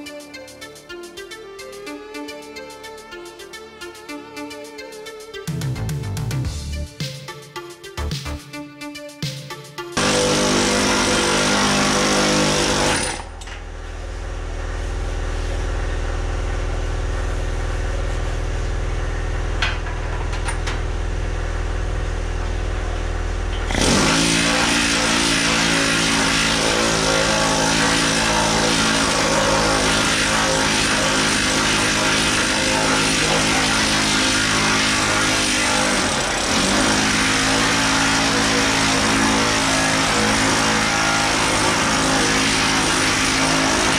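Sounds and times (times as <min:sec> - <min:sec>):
pneumatic hammer on metal: 0:10.0 - 0:13.6, 0:23.5 - 0:43.9.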